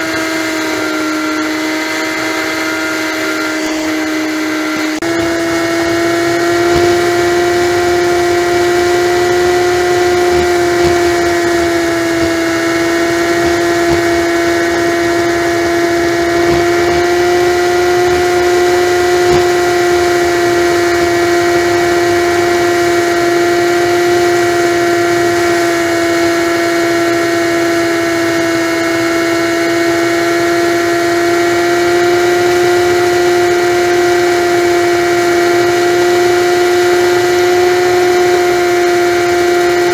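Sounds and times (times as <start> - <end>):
motorcycle engine whine: 0.0 - 39.9
wind noise: 4.4 - 26.2.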